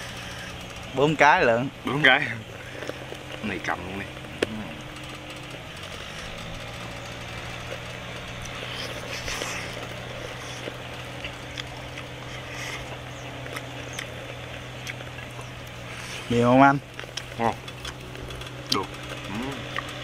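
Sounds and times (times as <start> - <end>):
engine humming: 0.0 - 20.0
eating clicks: 7.7 - 15.8, 16.9 - 20.0.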